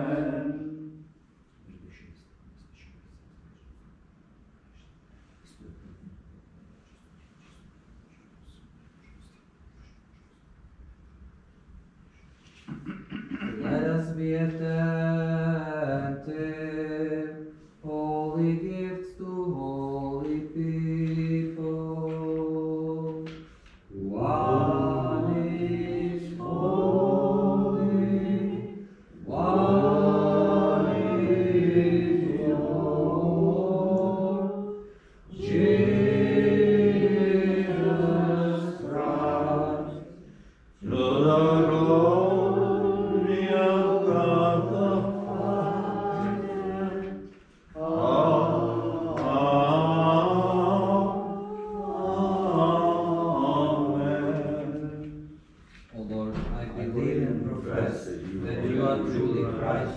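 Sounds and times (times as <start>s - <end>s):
choir singing chant: 0.0s - 1.1s, 13.6s - 23.3s, 23.9s - 55.4s, 56.8s - 59.9s.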